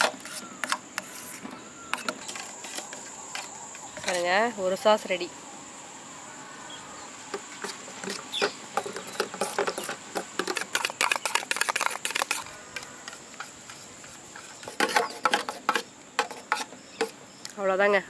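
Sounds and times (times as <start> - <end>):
crickets chirping: 0.0 - 18.0
metal spoon scraping a steel bowl: 7.6 - 17.2.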